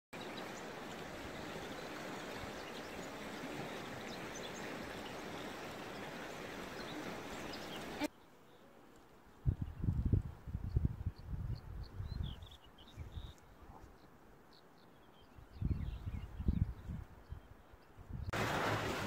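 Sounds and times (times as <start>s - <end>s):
stream flowing: 0.2s - 8.1s, 18.3s - 19.0s
small birds chirping: 0.2s - 18.3s.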